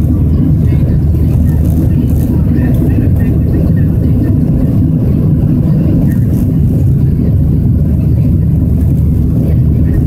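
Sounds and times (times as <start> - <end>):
jet engines rumbling in cabin: 0.0 - 10.0.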